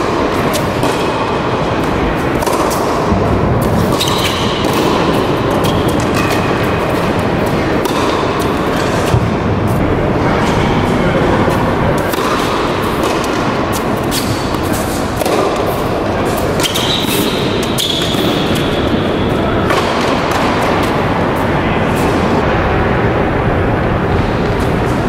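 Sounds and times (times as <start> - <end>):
rackets striking tennis ball: 0.0 - 22.4
hall background noise: 0.0 - 25.0
sneakers squealing on court: 3.9 - 4.6, 16.6 - 18.4.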